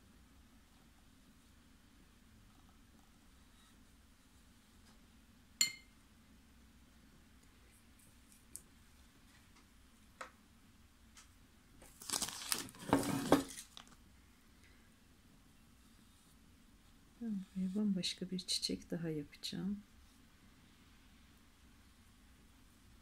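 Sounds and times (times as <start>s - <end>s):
crinkling rustle: 11.8s - 14.0s.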